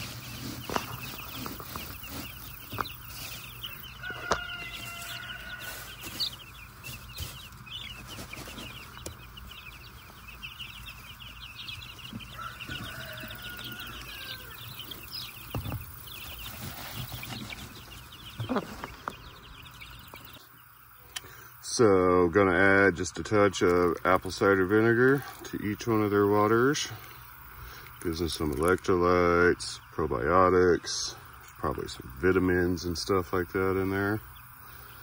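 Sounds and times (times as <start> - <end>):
plastic feeders knocking and rustling: 0.0 - 3.5, 15.4 - 19.2
chicks peeping: 0.0 - 35.0.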